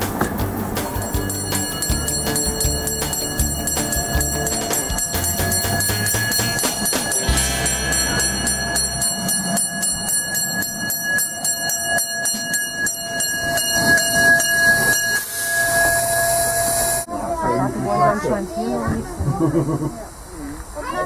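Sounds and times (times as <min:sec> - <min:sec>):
steam locomotive rolling: 0:00.0 - 0:17.1
steady ringing tones: 0:00.8 - 0:17.1
steam hissing: 0:14.7 - 0:17.1.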